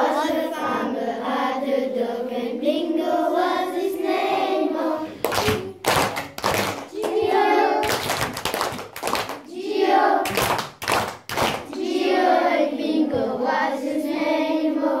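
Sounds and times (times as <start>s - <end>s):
voices singing: 0.0s - 8.1s, 9.5s - 10.4s, 11.7s - 15.0s
sharp hand claps: 5.2s - 7.2s, 7.8s - 9.5s, 10.2s - 11.8s.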